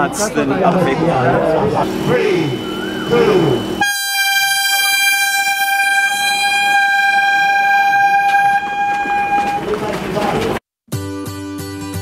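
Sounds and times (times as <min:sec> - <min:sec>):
air horn blast: 0:01.9 - 0:09.7.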